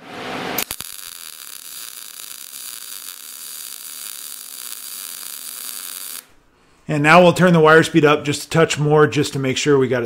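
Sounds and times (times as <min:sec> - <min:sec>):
welding arc sizzling: 0:00.0 - 0:06.4.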